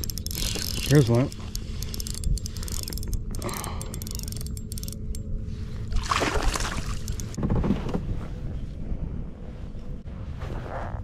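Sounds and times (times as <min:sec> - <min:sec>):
low wind rumble on microphone: 0:06.8 - 0:11.0.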